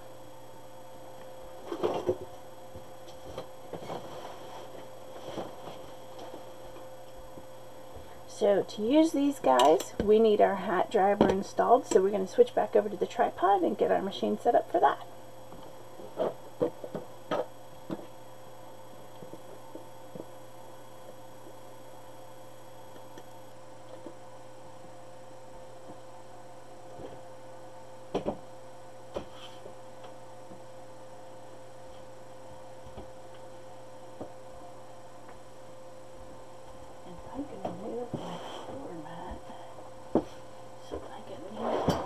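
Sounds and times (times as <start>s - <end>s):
electrical hum: 0.0s - 42.0s.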